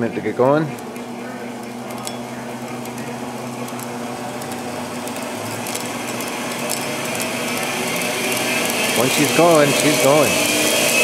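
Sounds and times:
grinder motor spinning up: 2.6 - 11.0.

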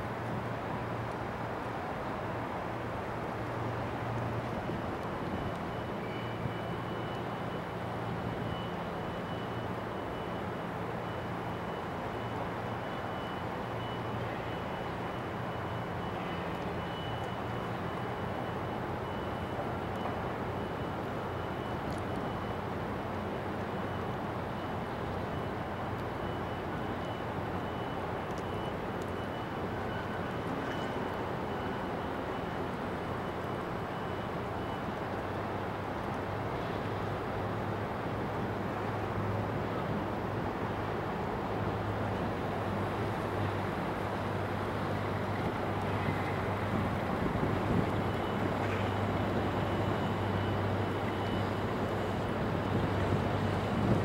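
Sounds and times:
harbour noise: 0.0 - 54.0
diesel engines humming: 22.6 - 54.0.

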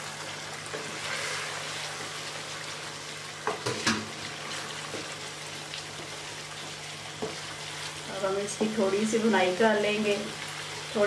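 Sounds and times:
gravy sizzling in a wok: 0.0 - 11.0.

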